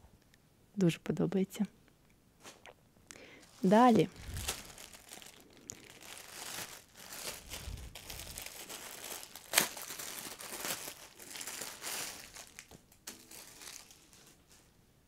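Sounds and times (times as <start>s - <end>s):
plastic bag crinkling: 3.2s - 14.7s.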